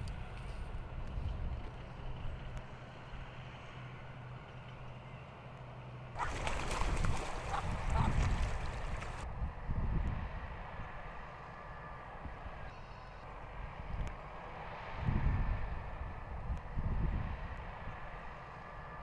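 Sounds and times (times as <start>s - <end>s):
ducks splashing and beating wings: 6.2s - 9.2s.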